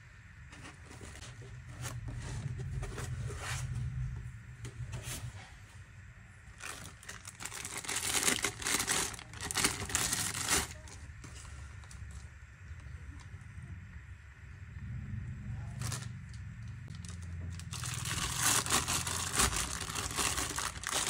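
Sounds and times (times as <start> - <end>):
handling and rubbing noise: 0.4 - 5.9
plastic bags crinkling: 6.6 - 12.3, 15.8 - 21.0.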